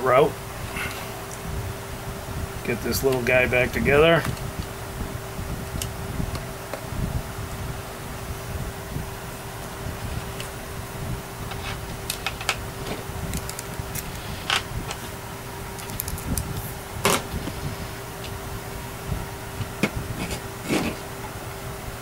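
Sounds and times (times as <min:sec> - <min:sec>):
background hum: 0:00.0 - 0:22.0
small plastic parts clicking: 0:15.8 - 0:16.4.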